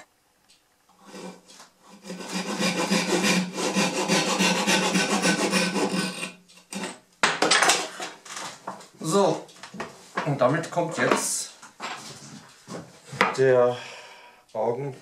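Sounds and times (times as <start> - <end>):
hand saw cutting wood: 1.0 - 7.0.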